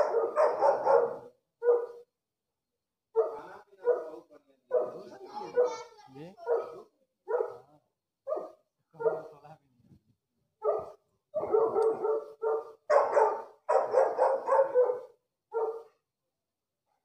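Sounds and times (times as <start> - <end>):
dogs barking: 0.0 - 2.0, 3.2 - 7.7, 8.3 - 9.4, 10.6 - 16.0.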